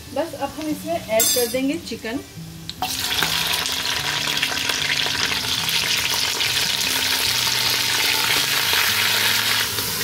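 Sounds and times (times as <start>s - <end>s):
chicken sizzling in hot oil: 2.8s - 10.0s.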